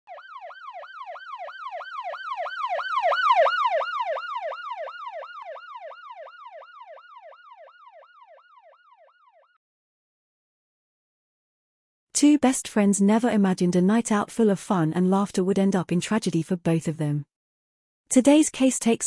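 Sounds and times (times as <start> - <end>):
emergency siren yelping: 0.1 - 9.6.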